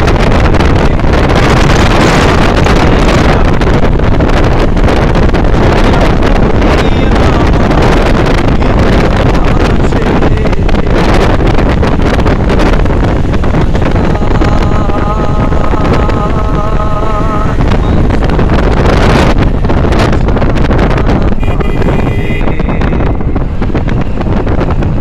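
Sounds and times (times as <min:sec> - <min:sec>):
low rumble: 0:00.0 - 0:25.0
wind buffeting microphone: 0:00.0 - 0:25.0.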